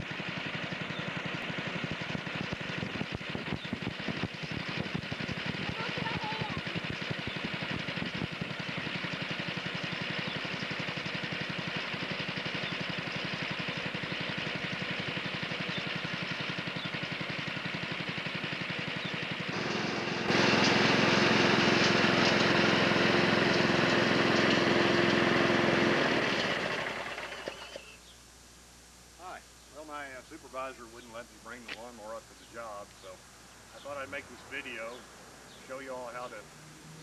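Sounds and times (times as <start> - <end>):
lawn mower engine running: 0.0 - 28.0, 29.8 - 37.0.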